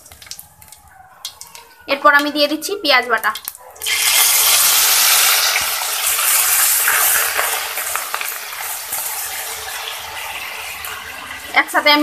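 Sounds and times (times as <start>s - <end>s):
onion paste sizzling in hot oil: 0.0s - 12.0s.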